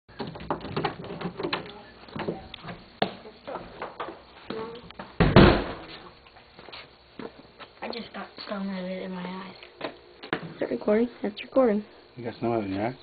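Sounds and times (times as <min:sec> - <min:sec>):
loud thump: 0:05.2 - 0:06.0.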